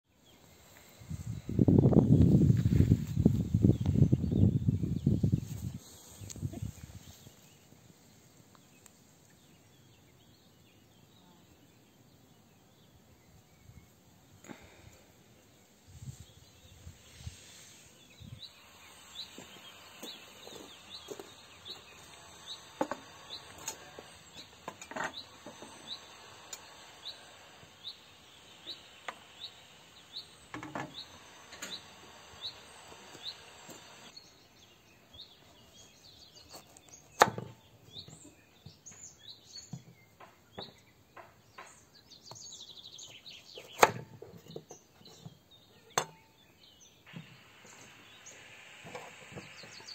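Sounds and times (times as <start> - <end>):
bird rising chirp: 16.1 - 39.8.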